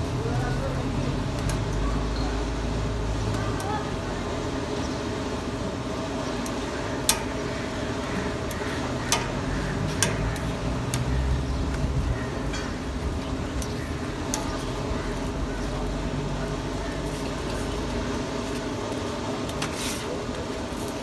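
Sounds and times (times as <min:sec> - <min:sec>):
street noise: 0:00.0 - 0:21.0
metal tongs clicking on griddle: 0:01.3 - 0:01.8, 0:06.4 - 0:07.6, 0:08.3 - 0:14.9.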